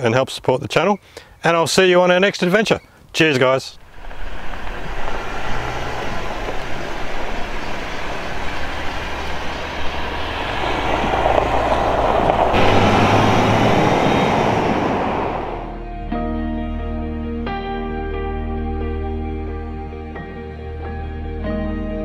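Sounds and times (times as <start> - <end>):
passing cars: 3.8 - 15.8.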